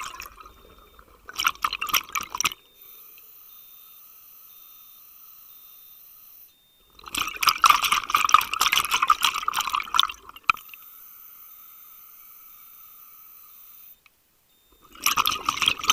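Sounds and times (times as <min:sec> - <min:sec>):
exhaled bubbles gurgling underwater: 0:00.0 - 0:02.6, 0:06.9 - 0:10.7, 0:14.7 - 0:15.9
faint high whine: 0:00.0 - 0:15.9.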